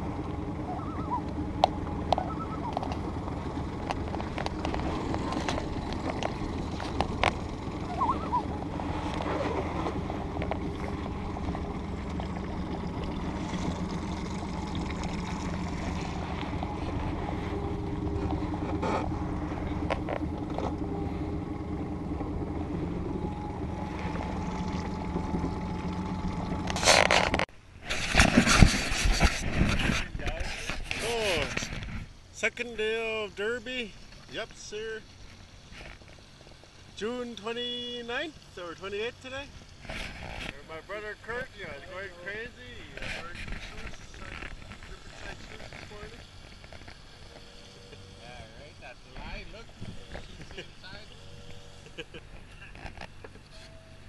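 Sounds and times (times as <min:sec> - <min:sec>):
outboard motor running: 0:00.0 - 0:54.0
water washing along hull: 0:00.0 - 0:54.0.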